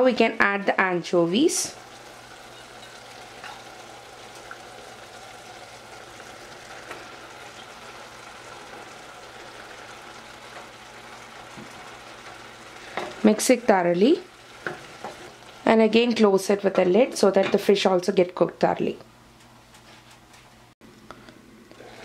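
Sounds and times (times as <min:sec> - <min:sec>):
curry sizzling in a saucepan: 0:00.0 - 0:16.8.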